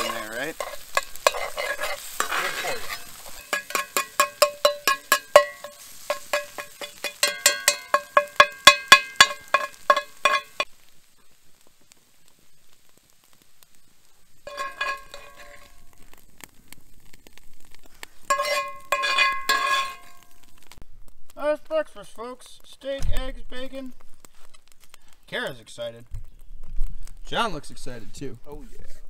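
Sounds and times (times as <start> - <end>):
spoon scraping cast-iron skillet: 0.0 - 10.7, 14.4 - 16.2, 17.6 - 20.7
faint sizzling: 0.0 - 29.0.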